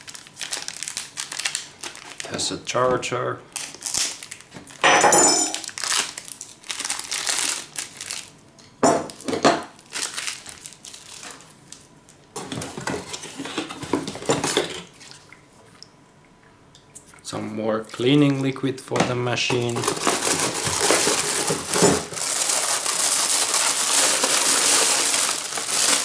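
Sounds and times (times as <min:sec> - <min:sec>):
plastic packaging crinkling: 0:00.0 - 0:02.8, 0:03.5 - 0:04.8, 0:05.5 - 0:14.9, 0:19.5 - 0:26.0.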